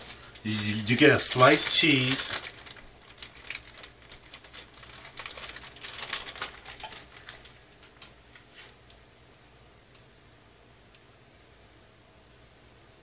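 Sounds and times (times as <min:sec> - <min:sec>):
plastic wrapper crinkling: 0:00.0 - 0:08.8.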